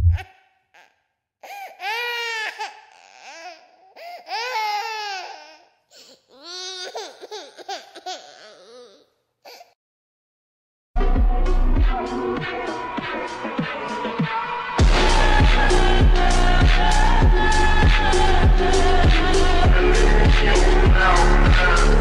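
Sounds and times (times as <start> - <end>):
baby crying: 0.0 - 9.8.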